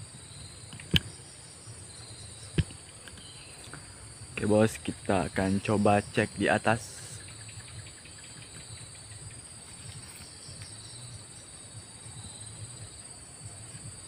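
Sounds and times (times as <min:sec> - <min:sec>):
insects trilling: 0:00.0 - 0:14.0.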